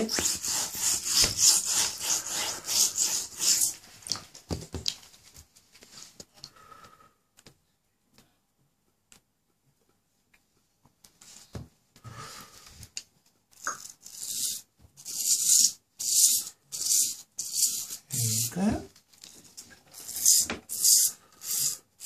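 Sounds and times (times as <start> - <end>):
stiff brush scrubbing scaly skin: 0.0 - 4.2.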